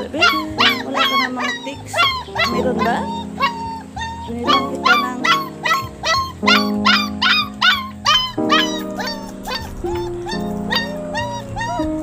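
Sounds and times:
background music with sustained chords: 0.0s - 12.0s
puppy yelping: 0.0s - 12.0s.

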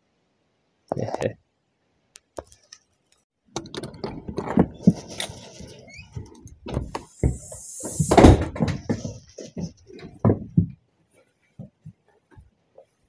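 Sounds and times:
knocks and thumps: 3.5s - 5.2s, 6.1s - 10.8s
door opening: 3.5s - 9.2s
brief noisy rush: 7.0s - 8.5s.

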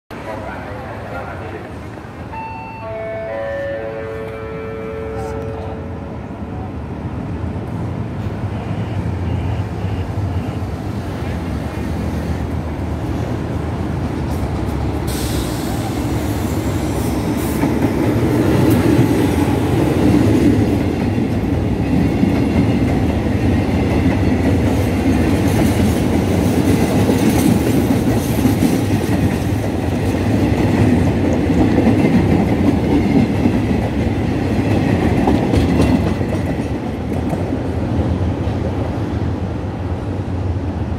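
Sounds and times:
freight train rumbling past: 0.1s - 40.9s.

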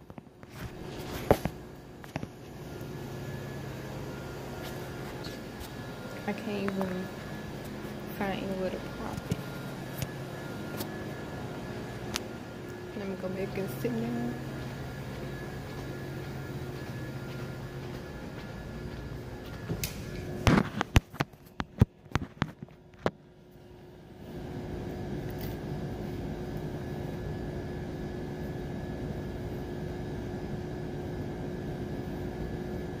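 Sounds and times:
ventilation hum: 0.0s - 33.0s.

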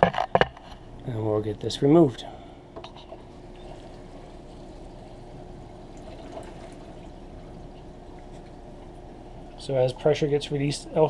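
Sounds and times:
water pouring from a hose: 5.9s - 7.2s.

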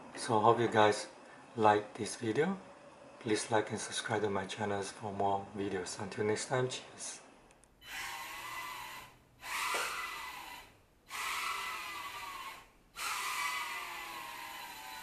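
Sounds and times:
small drone motors whining: 7.8s - 15.0s.

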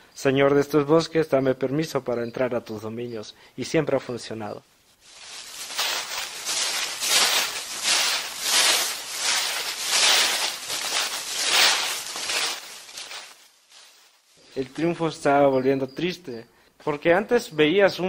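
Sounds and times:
footsteps crunching through dry leaves: 5.0s - 14.8s.

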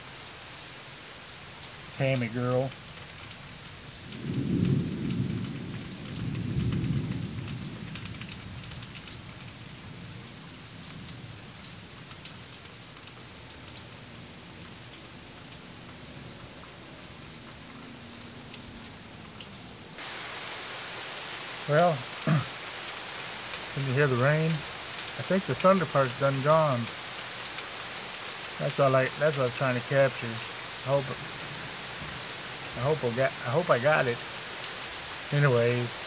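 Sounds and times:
rain falling: 0.0s - 36.0s
thunder rumble: 4.2s - 8.3s
water drips ticking: 21.0s - 36.0s.

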